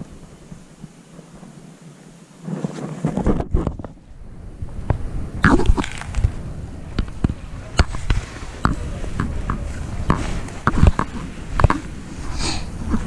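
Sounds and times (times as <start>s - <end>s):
footsteps crunching frosty grass: 4.9s - 13.0s
twigs snapping: 5.4s - 6.4s.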